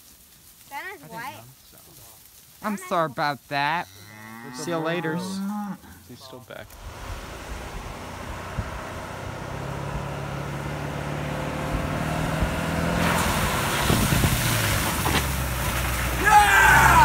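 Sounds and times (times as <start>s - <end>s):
tyres splashing through puddles: 1.2s - 17.0s
pickup truck engine approaching: 6.7s - 17.0s.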